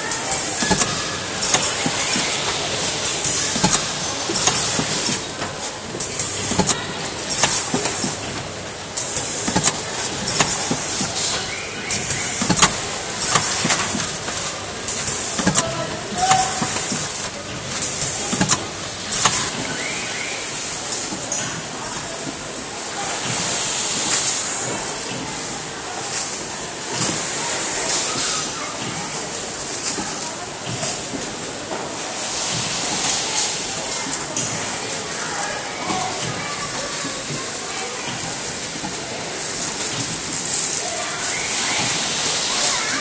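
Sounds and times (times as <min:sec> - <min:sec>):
printer mechanical noise: 0:00.0 - 0:43.0
sharp clacks and knocks: 0:00.6 - 0:19.5.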